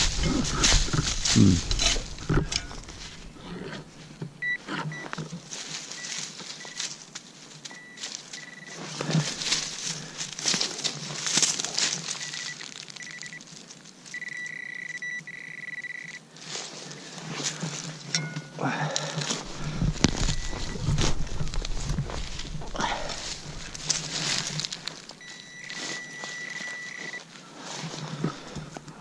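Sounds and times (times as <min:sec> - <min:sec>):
rustling and scraping: 0:00.0 - 0:14.4, 0:15.7 - 0:29.0
metal detector beeping: 0:04.4 - 0:07.0, 0:07.6 - 0:09.4, 0:12.0 - 0:13.5, 0:14.1 - 0:16.2, 0:18.1 - 0:18.6, 0:19.6 - 0:22.0, 0:25.1 - 0:27.3.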